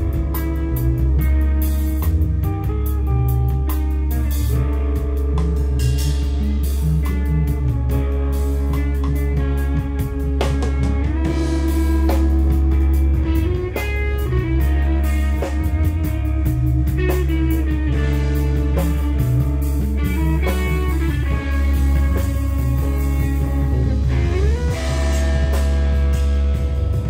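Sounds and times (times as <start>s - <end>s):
drum kit: 0.0s - 27.0s
electric bass guitar: 0.0s - 27.0s
electric guitar bending notes: 0.0s - 27.0s.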